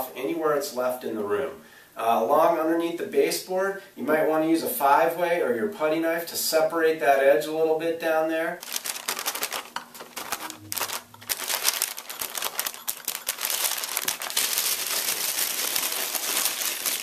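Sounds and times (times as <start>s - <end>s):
paper crackling and tearing: 8.6s - 17.0s.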